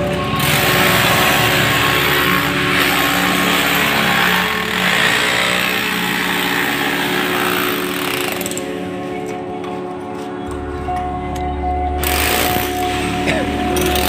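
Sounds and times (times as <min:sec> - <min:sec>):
power tool rasping: 0:00.4 - 0:08.7, 0:12.0 - 0:13.0.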